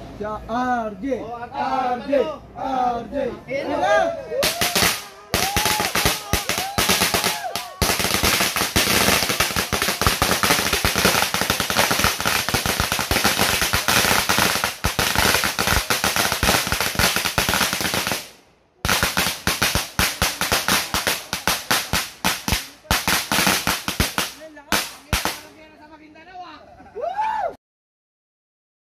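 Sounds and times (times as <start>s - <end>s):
firecrackers cracking rapidly: 4.4s - 25.6s.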